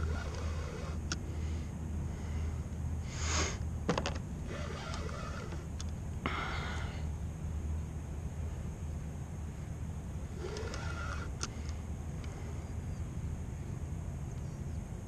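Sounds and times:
hissing exhales: 0:02.2 - 0:03.6, 0:06.2 - 0:07.1.

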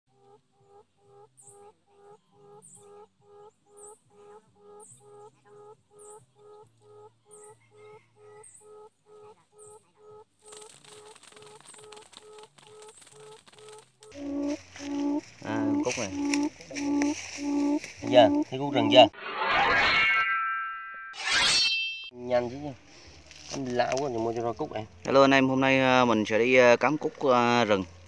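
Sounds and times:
faint high chirps: 0:03.7 - 0:19.0
quail hooting call: 0:10.9 - 0:19.1.

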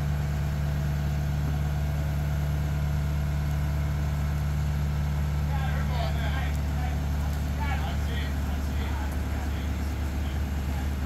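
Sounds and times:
diesel engine running steadily: 0:00.0 - 0:11.0.

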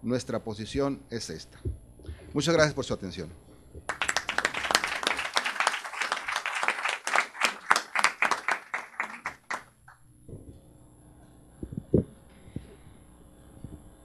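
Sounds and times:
audience applauding: 0:03.9 - 0:09.8.

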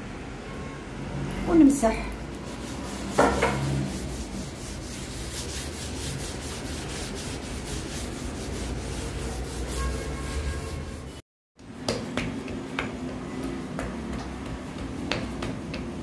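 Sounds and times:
paper towel rubbing metal griddle: 0:02.4 - 0:11.2.

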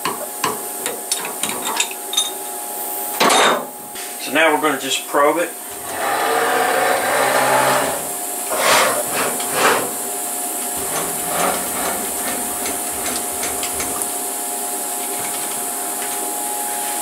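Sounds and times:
steady hum: 0:02.4 - 0:17.0
stepper motor whine: 0:05.7 - 0:08.8.

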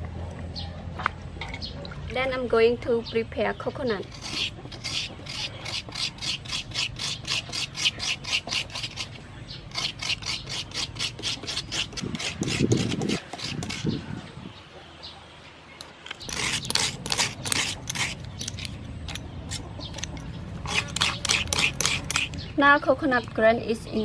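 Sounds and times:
metal scraper rasping coconut: 0:04.0 - 0:14.0, 0:15.8 - 0:22.5.

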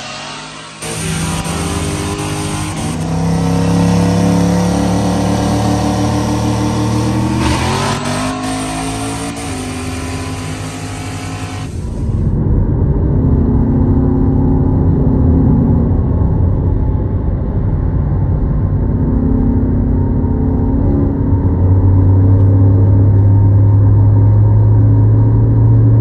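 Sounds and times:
pickup truck engine at full throttle: 0:00.0 - 0:16.8.

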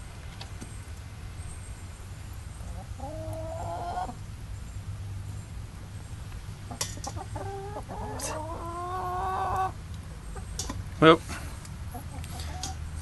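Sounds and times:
chickens calling: 0:02.5 - 0:04.2, 0:06.7 - 0:10.8, 0:11.9 - 0:13.0.

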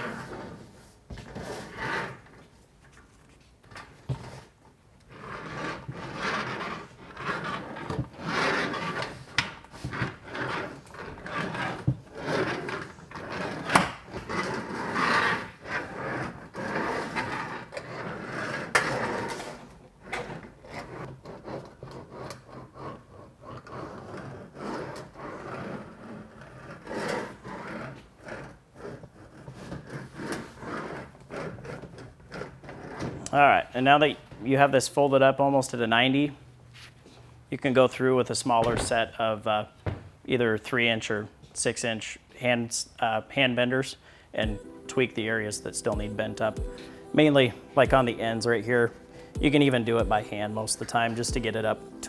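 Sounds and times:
roller scraping metal roofing panel: 0:00.0 - 0:02.6, 0:03.9 - 0:33.2, 0:45.0 - 0:51.8.

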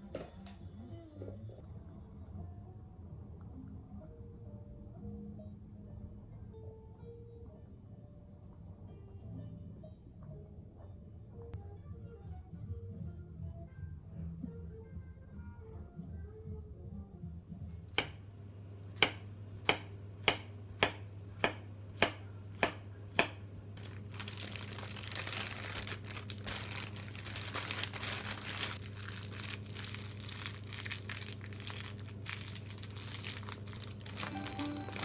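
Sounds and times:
plastic bag crinkling: 0:23.8 - 0:35.0.

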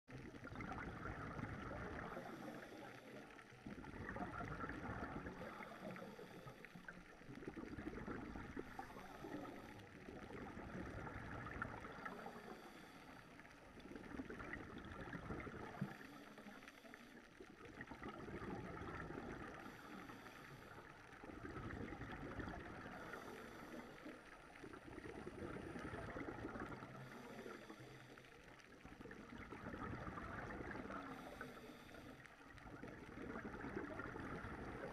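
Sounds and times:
exhaled bubbles gurgling: 0:00.1 - 0:34.9
scuba regulator breathing: 0:05.5 - 0:06.9, 0:08.6 - 0:09.9, 0:12.0 - 0:13.4, 0:19.6 - 0:20.9, 0:22.9 - 0:24.3, 0:26.9 - 0:28.3, 0:31.0 - 0:32.3.

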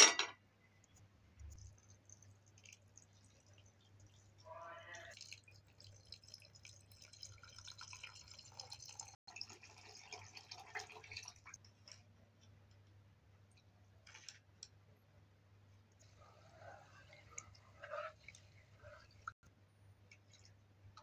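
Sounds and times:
water trickling into pot: 0:01.5 - 0:12.1, 0:16.0 - 0:19.4.

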